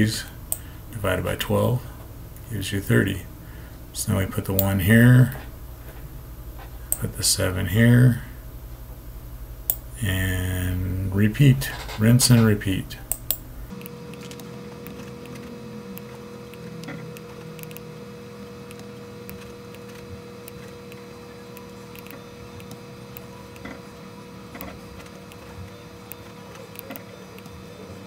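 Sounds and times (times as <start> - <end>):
steady machine hum: 0.0 - 28.0
computer mouse clicks: 13.1 - 15.4, 16.0 - 17.8, 18.6 - 23.7.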